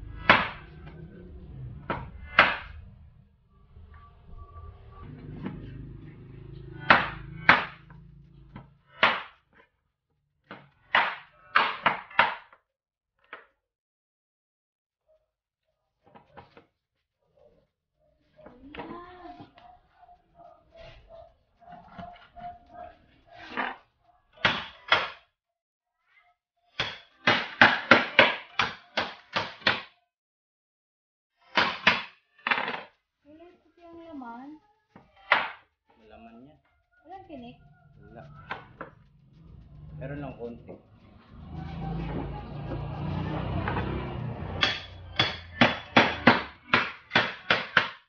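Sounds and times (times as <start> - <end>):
knife chopping on wooden board: 44.6 - 48.0.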